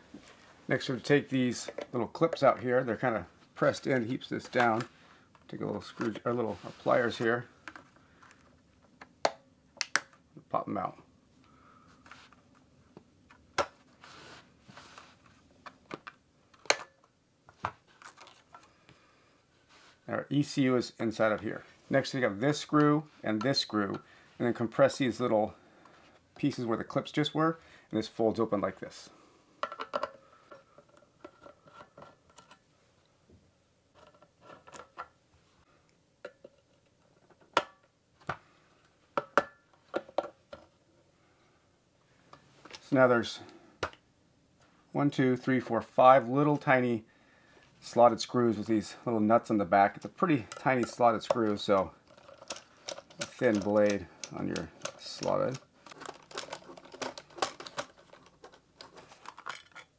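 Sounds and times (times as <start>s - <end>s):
plastic clips clicking: 52.1s - 59.8s.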